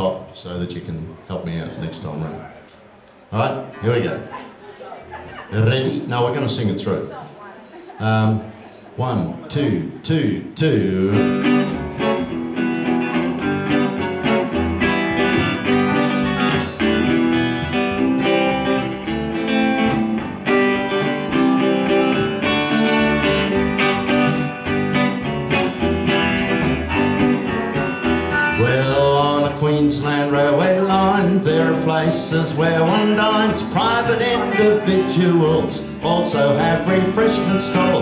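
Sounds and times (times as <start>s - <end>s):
country band playing: 5.3s - 7.1s, 10.8s - 38.0s
man singing: 10.6s - 11.6s, 28.3s - 38.0s.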